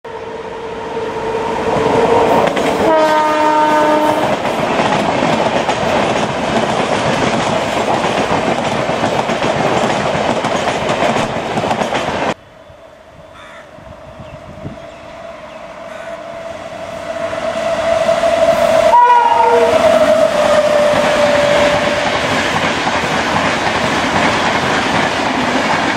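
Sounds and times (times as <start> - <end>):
train wheels clattering on rails: 2.2 - 12.4, 19.7 - 25.9
locomotive horn blast: 2.8 - 4.4, 15.9 - 22.0.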